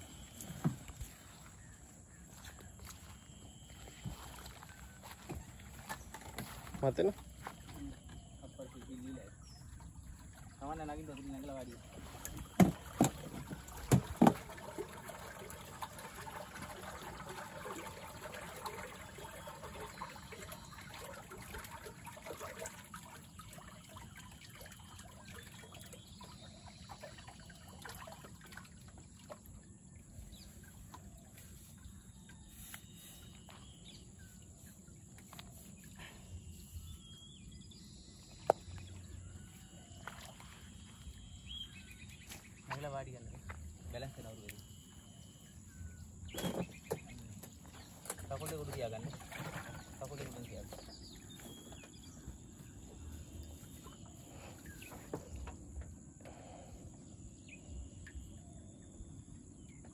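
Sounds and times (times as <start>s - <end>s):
faint chirps: 0.0s - 13.0s, 30.0s - 59.9s
water trickling and splashing: 0.0s - 58.4s
sharp knocks on canoe: 12.3s - 14.5s.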